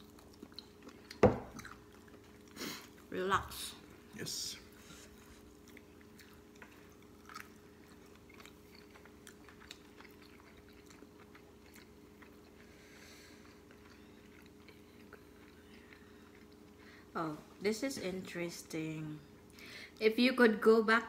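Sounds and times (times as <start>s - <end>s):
chewing: 0.0s - 3.1s, 4.7s - 17.0s
steady low room hum: 0.0s - 21.0s.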